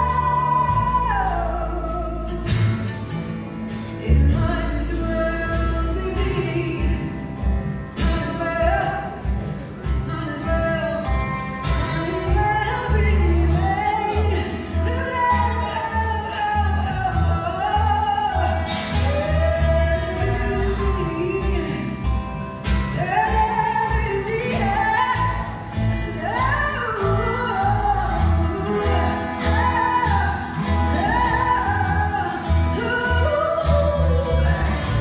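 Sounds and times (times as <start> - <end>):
acoustic guitar: 0.0 - 35.0
upright double bass: 0.0 - 35.0
woman singing: 0.0 - 35.0
drums: 2.2 - 35.0.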